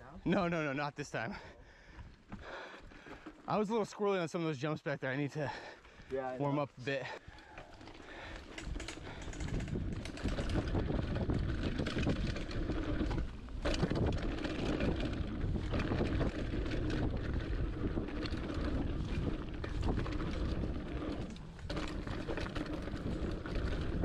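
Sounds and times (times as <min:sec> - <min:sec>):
tyres rolling over dirt trail: 0:00.2 - 0:24.0
bike rattles and clicks: 0:01.9 - 0:03.7, 0:05.5 - 0:24.0
wind rushing over microphone: 0:08.6 - 0:24.0.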